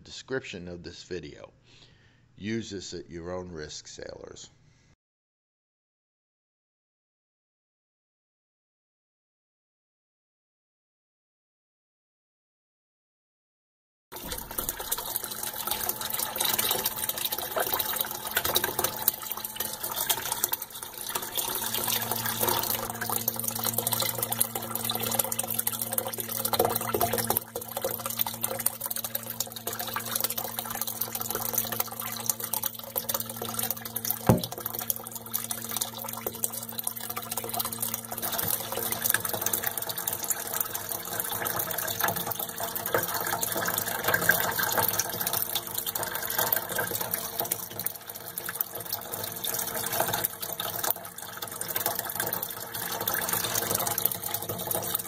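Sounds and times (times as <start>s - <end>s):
low steady hum: 14.2s - 48.3s
water splashing into tank: 14.2s - 55.0s.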